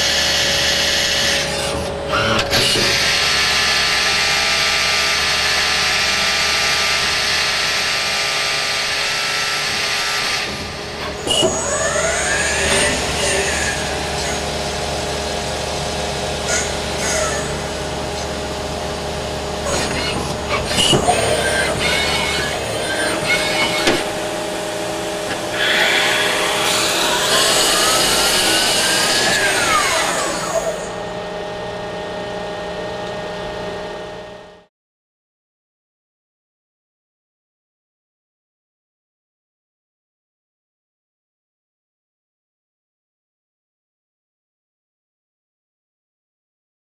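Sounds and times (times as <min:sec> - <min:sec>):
lathe machine hum with cutting: 0:00.0 - 0:34.7
machine whine: 0:00.0 - 0:34.7
tool drilling into metal: 0:19.6 - 0:31.0.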